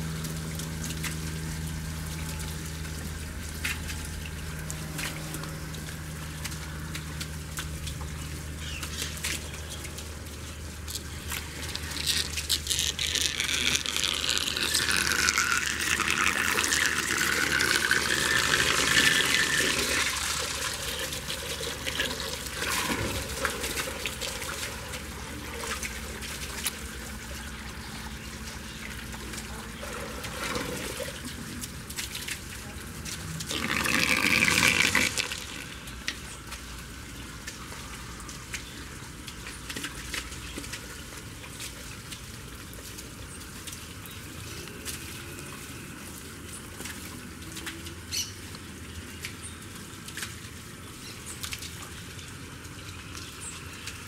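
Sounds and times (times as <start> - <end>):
low steady hum: 0.0 - 54.0
water gushing and splashing: 0.0 - 54.0.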